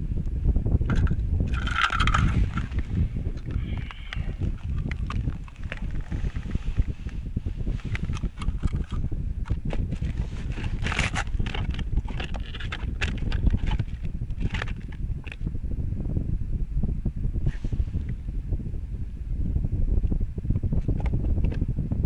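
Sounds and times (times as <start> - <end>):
wind rumbling on microphone: 0.0 - 22.0
crunches and scrapes on ice: 0.9 - 15.4.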